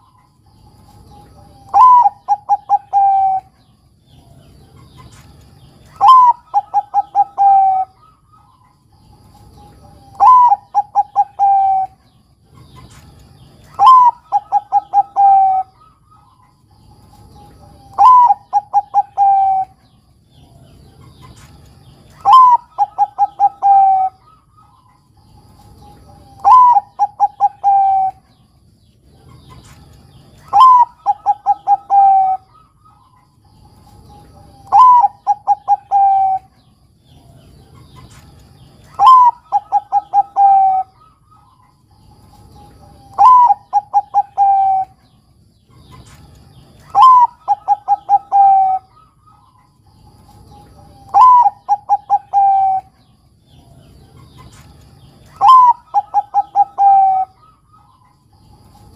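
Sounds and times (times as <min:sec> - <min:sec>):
dove cooing: 0:00.9 - 0:58.9.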